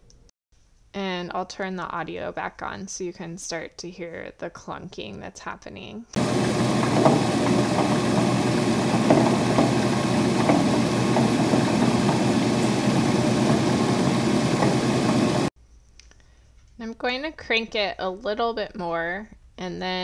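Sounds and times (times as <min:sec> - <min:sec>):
beater machine churning drone: 0:06.2 - 0:15.5.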